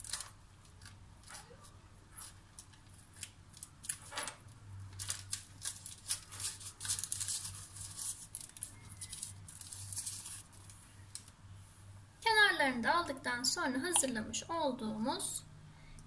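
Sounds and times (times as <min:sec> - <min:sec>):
faint low hum: 0:00.0 - 0:16.0
paper rustling: 0:04.9 - 0:11.3.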